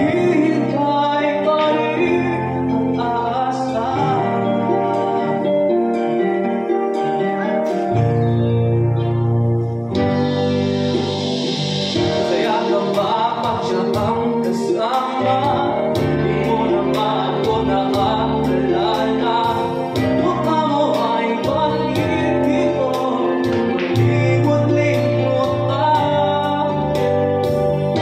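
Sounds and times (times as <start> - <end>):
man singing into microphone: 0.0 - 8.6, 11.9 - 28.0
backing music with beat: 0.0 - 28.0.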